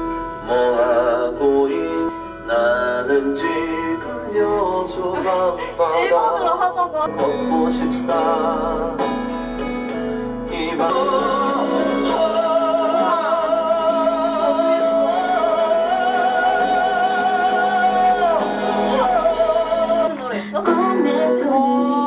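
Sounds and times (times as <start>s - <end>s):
person singing with vibrato: 0.0s - 9.2s, 10.2s - 22.0s
instrumental accompaniment: 6.6s - 22.0s.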